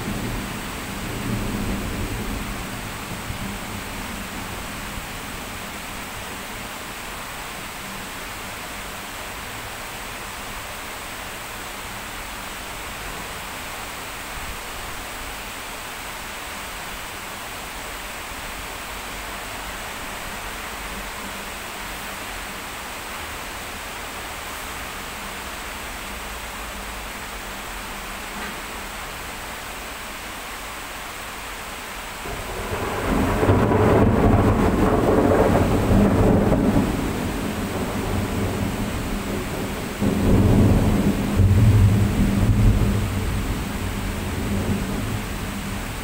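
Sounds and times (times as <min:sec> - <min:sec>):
heavy rain pouring: 0:00.0 - 0:46.0
thunder rumble: 0:32.2 - 0:46.0.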